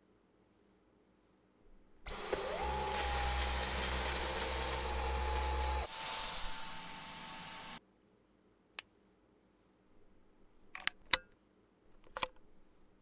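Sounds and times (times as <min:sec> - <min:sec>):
cordless vacuum motor whine: 0:02.1 - 0:07.8.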